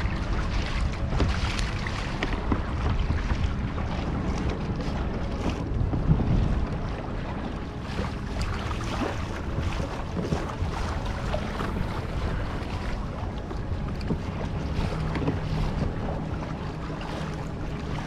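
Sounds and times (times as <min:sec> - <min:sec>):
water lapping and splashing: 0:00.0 - 0:18.0
wind on microphone: 0:00.0 - 0:18.0.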